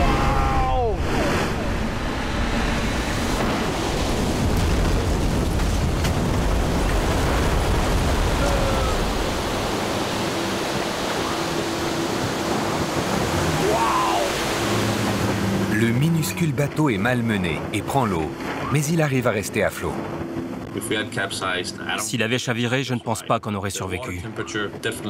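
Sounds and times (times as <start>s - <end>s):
deep rumble: 0.0s - 16.2s
rushing water and ice: 0.0s - 23.2s.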